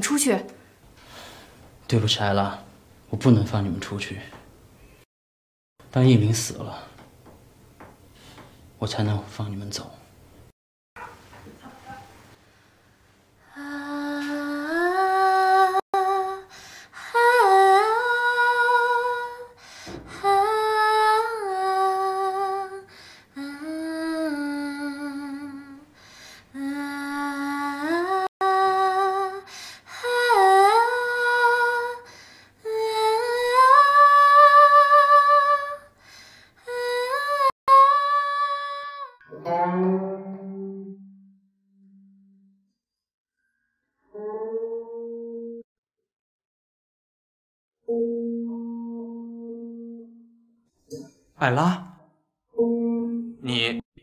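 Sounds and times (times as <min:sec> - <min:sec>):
breaths: 0:00.6 - 0:01.7, 0:08.1 - 0:08.7, 0:12.4 - 0:13.2, 0:16.5 - 0:17.0, 0:19.6 - 0:20.1, 0:22.9 - 0:23.3, 0:26.0 - 0:26.5, 0:29.5 - 0:29.9, 0:32.1 - 0:32.6, 0:36.0 - 0:36.6
woman singing wordless melody: 0:13.5 - 0:36.0, 0:36.6 - 0:40.0.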